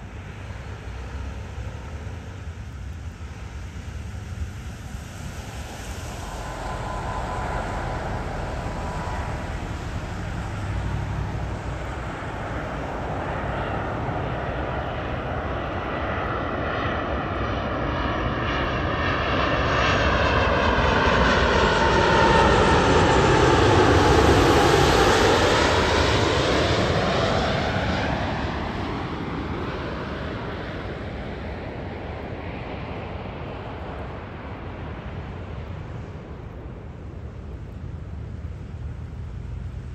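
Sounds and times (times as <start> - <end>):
airliner engines landing: 0.0 - 39.9.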